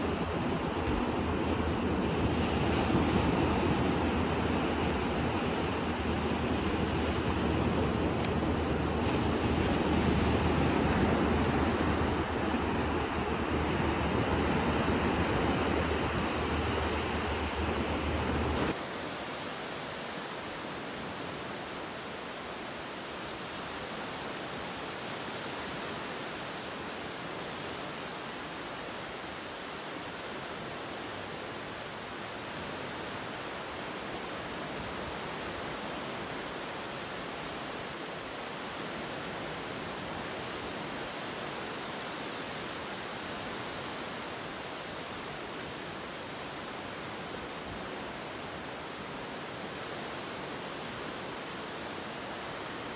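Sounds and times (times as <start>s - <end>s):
steady rushing noise: 0.0s - 52.9s.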